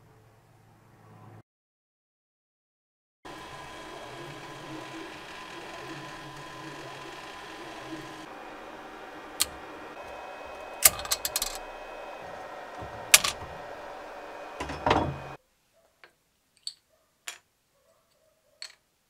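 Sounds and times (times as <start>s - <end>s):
printer fans humming: 3.3s - 15.4s.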